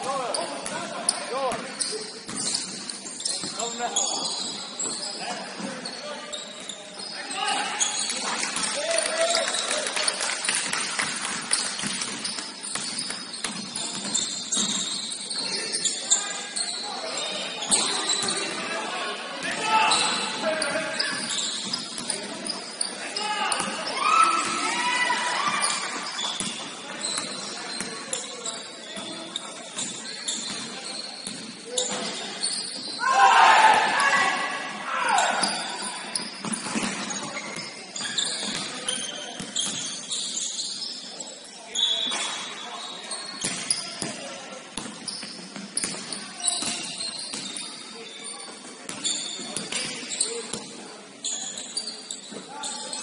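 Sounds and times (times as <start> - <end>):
sneakers squeaking on court: 0.0 - 8.7, 10.4 - 18.8, 19.5 - 33.2, 34.0 - 53.0
basketball bouncing on court: 11.6 - 15.0, 44.8 - 47.6, 48.9 - 50.0.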